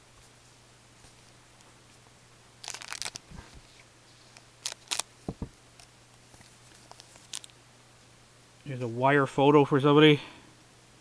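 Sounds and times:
cards rustling: 0:02.6 - 0:05.5, 0:06.2 - 0:07.5.

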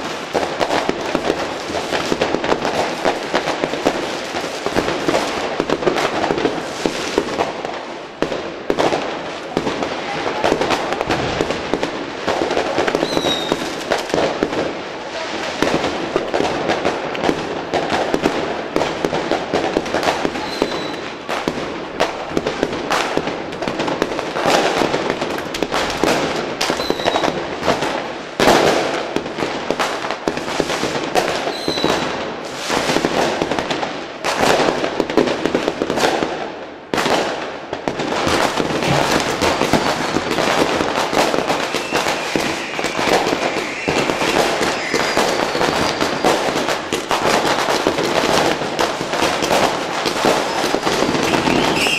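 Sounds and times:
fireworks bangs and crackling: 0:00.0 - 0:51.9
firework whistles: 0:12.9 - 0:13.9, 0:20.4 - 0:21.2, 0:26.7 - 0:27.4, 0:31.5 - 0:32.9, 0:41.3 - 0:47.3, 0:50.3 - 0:51.9.

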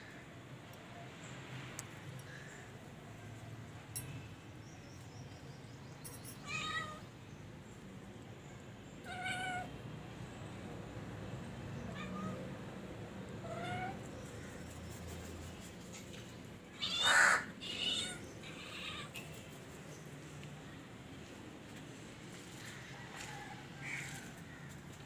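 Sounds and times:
kittens meowing: 0:09.0 - 0:09.7, 0:13.4 - 0:14.0, 0:16.8 - 0:19.2.

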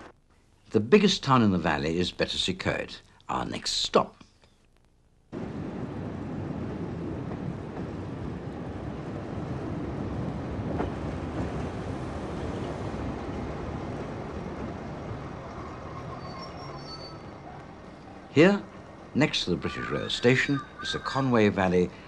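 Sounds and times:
train rumbling on rails: 0:05.4 - 0:22.0.

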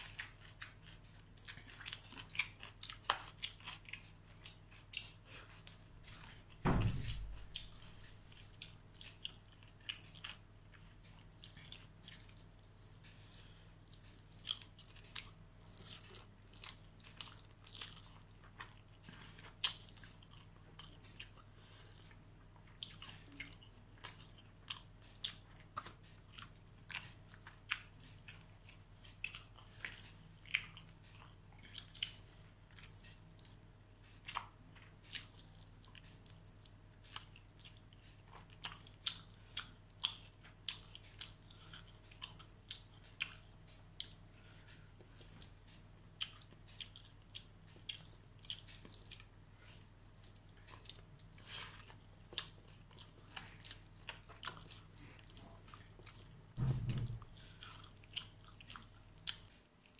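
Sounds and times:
chewing with wet smacks: 0:00.0 - 0:59.9
faint low hum: 0:00.0 - 0:59.9.

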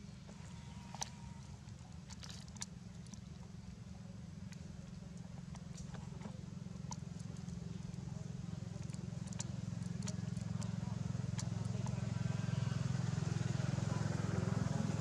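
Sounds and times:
faint clicks and crackles: 0:04.4 - 0:12.1.

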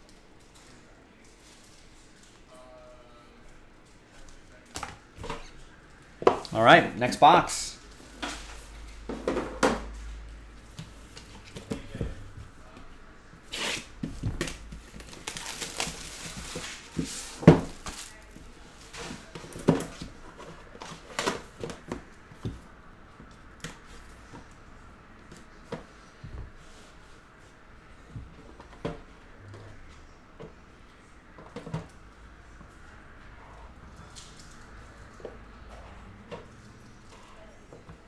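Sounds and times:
plastic wrap tearing and crinkling: 0:13.5 - 0:18.4.

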